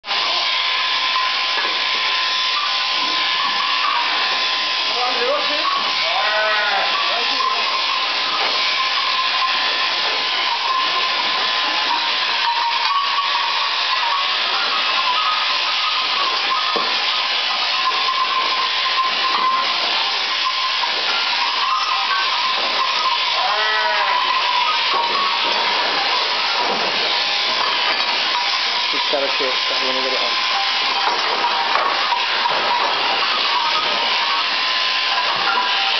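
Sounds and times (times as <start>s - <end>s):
electric shears whining: 0.0s - 35.9s
sheep bleating: 5.9s - 7.4s, 23.2s - 24.8s.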